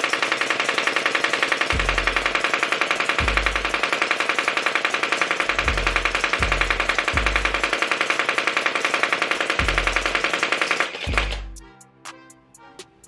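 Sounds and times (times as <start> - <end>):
gel blaster firing full auto: 0.0 - 11.5
background music with deep bass: 1.8 - 2.4, 3.2 - 3.8, 5.5 - 7.7, 9.6 - 10.3, 11.1 - 13.0.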